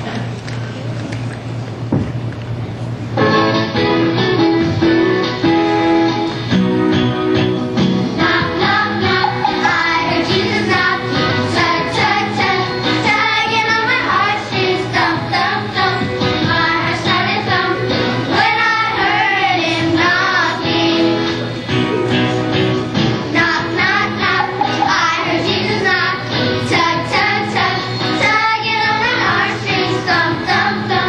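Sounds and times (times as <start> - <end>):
young voices singing: 8.2 - 21.4, 23.3 - 31.0
instrumental music with beat: 23.9 - 26.0.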